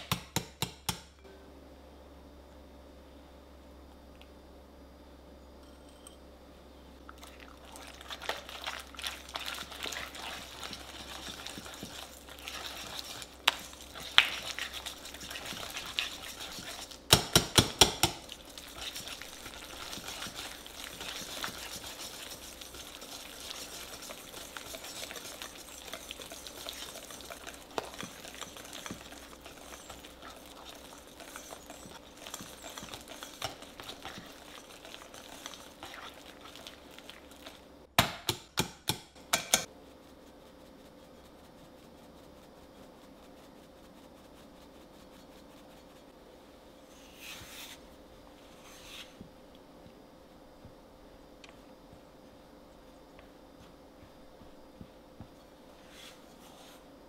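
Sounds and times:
whisk beating in glass bowl: 7.7s - 37.6s.

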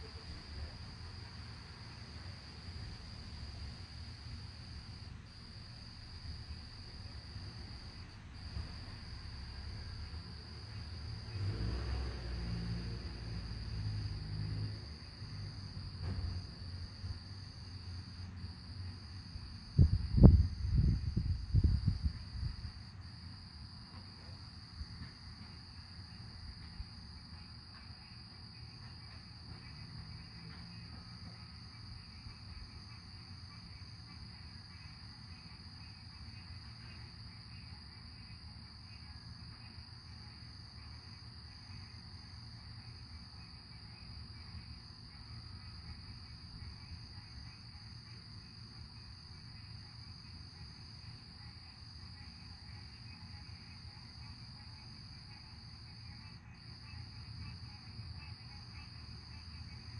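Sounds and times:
low background rumble: 12.0s - 33.8s.

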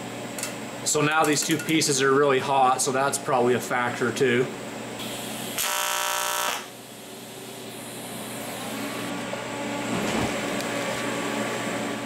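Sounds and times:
machine hum: 2.0s - 12.0s
welding arc buzzing: 5.0s - 9.2s.

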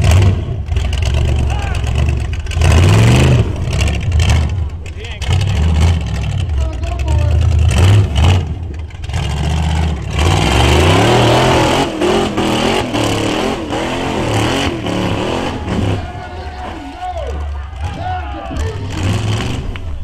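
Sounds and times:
buggy engine revving: 0.0s - 20.0s.

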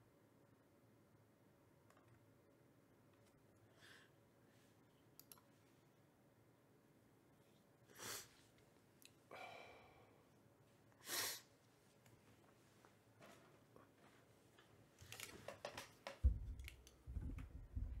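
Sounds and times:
person breathing sharply: 9.3s - 10.2s
person sighing: 9.3s - 10.2s.

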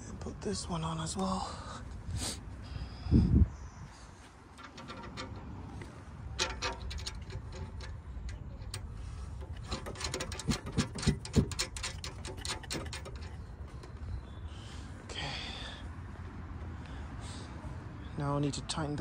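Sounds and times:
bolt clicking and scraping: 4.5s - 14.4s
heavier metal knocks: 4.6s - 14.2s.

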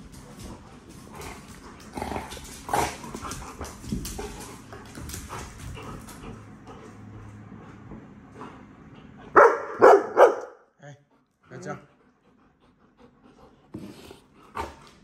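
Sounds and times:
dogs growling: 0.0s - 9.4s, 12.4s - 15.0s
paws clicking on hard floor: 0.0s - 10.5s, 13.7s - 15.0s.

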